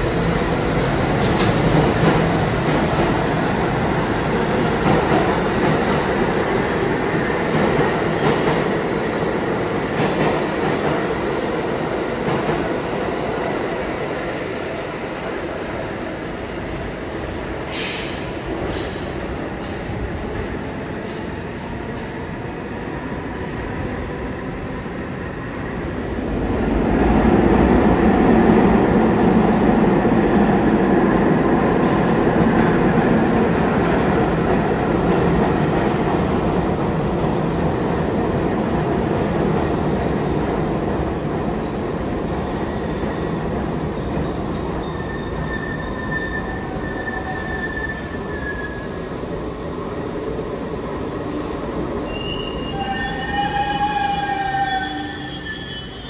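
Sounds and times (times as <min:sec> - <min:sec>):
subway train rumbling on rails: 0:00.0 - 0:56.0
high wheel squeal: 0:52.1 - 0:56.0.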